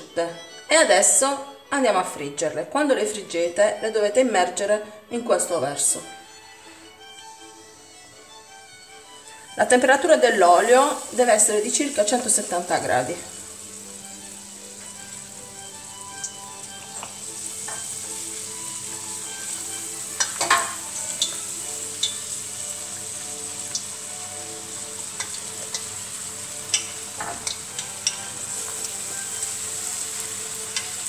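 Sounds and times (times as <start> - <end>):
dough sizzling in hot oil: 9.3 - 31.0.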